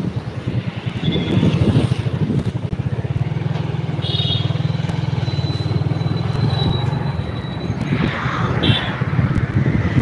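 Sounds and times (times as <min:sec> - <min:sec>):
wind buffeting microphone: 0:00.0 - 0:03.0, 0:06.4 - 0:10.0.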